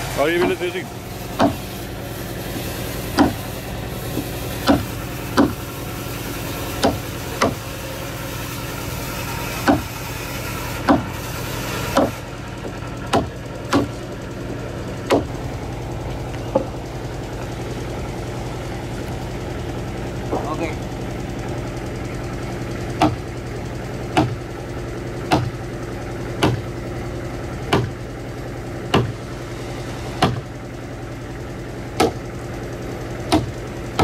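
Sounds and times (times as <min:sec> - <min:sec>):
steady engine drone: 0:00.0 - 0:34.0
wooden mallet striking chisel: 0:01.4 - 0:01.7, 0:03.2 - 0:03.4, 0:04.2 - 0:05.6, 0:06.8 - 0:07.6, 0:09.6 - 0:10.0, 0:10.8 - 0:11.1, 0:11.9 - 0:12.2, 0:13.1 - 0:14.0, 0:15.1 - 0:15.3, 0:23.0 - 0:23.2, 0:24.2 - 0:24.4, 0:25.3 - 0:25.5, 0:26.4 - 0:26.6, 0:27.7 - 0:28.0, 0:28.9 - 0:29.2, 0:30.2 - 0:30.5, 0:32.0 - 0:32.2, 0:33.3 - 0:34.0.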